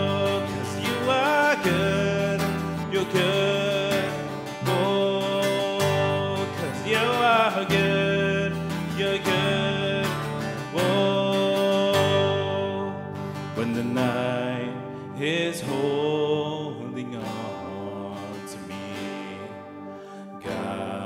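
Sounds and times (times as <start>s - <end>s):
electric bass guitar: 0.0s - 15.1s
acoustic guitar strummed: 0.0s - 21.0s
man singing: 0.0s - 21.0s.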